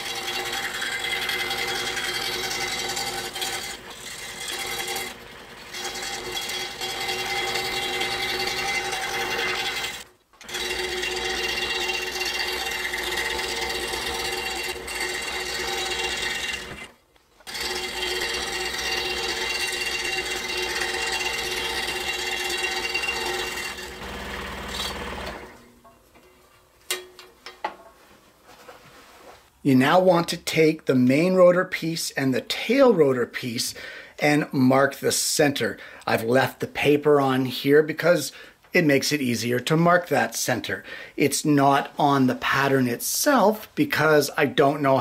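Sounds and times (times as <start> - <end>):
scroll saw running: 0.0 - 25.6.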